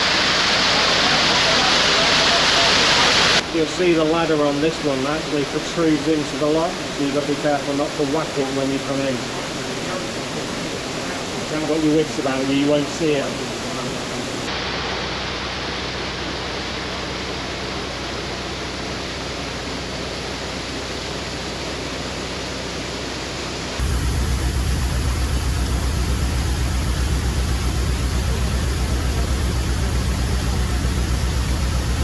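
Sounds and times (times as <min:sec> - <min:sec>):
water rushing: 0:00.0 - 0:16.0, 0:23.8 - 0:32.0
diesel engine chugging: 0:23.8 - 0:32.0.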